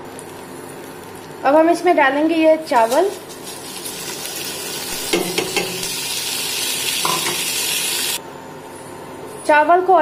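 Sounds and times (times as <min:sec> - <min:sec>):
rice sizzling in a frying pan: 0:02.6 - 0:08.2.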